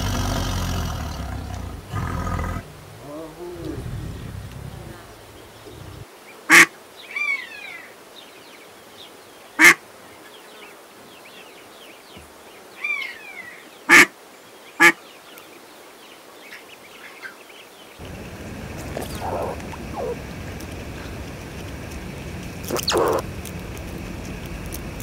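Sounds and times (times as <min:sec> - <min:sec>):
small birds chirping: 0:00.0 - 0:25.0
duck quacking: 0:18.8 - 0:20.2, 0:22.7 - 0:23.2.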